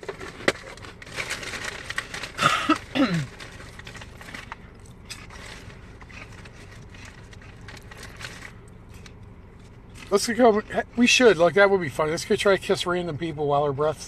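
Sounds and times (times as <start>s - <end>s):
person chewing with crunches: 0.0s - 10.9s.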